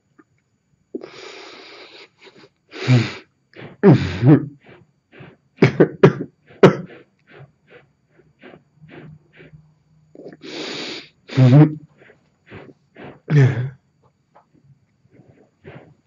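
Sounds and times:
man sobbing: 0:03.8 - 0:04.6, 0:05.6 - 0:06.9, 0:11.3 - 0:11.8, 0:13.3 - 0:13.7.

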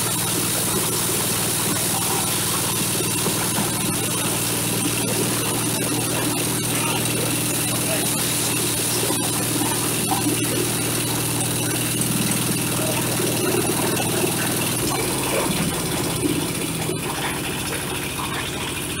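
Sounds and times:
diesel engine droning: 0:00.0 - 0:19.0.

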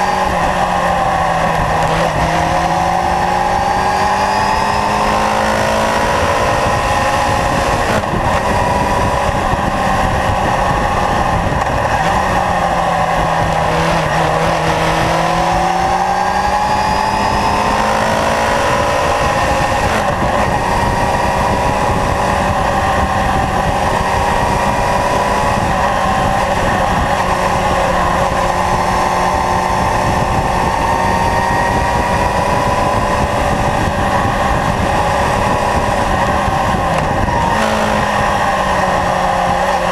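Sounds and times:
heavy rushing wind noise: 0:00.0 - 0:39.9
motorcycle engine running: 0:00.0 - 0:39.9.

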